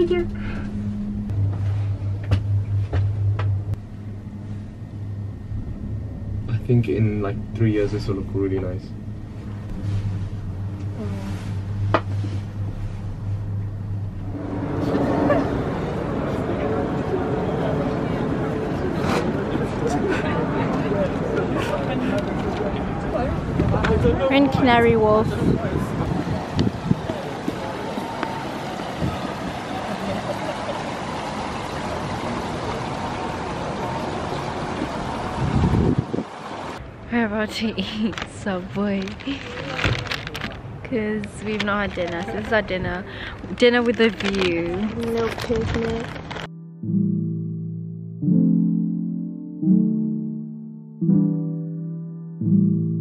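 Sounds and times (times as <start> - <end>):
noisy ambience: 0.0 - 46.5
cable car cabin hum: 0.0 - 48.2
water feature rushing: 24.9 - 36.8.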